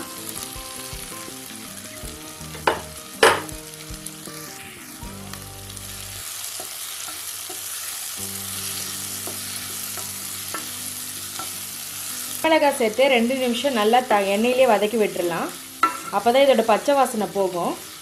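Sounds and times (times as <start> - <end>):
vegetables sizzling in a pan: 0.0 - 18.0
spatula knocking against pan: 2.6 - 3.5.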